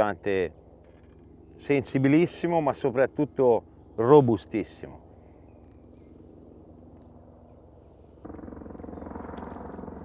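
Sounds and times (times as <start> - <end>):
low pulsing motor hum: 0.0 - 10.0.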